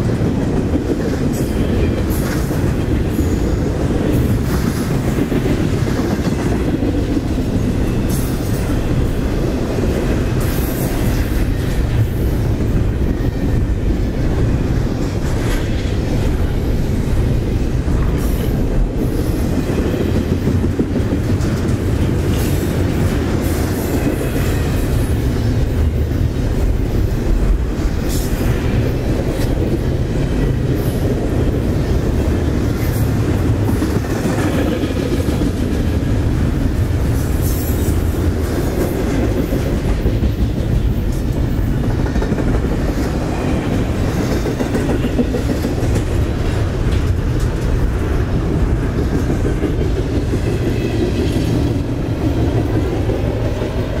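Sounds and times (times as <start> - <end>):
freight train rumbling past: 0.0 - 54.0.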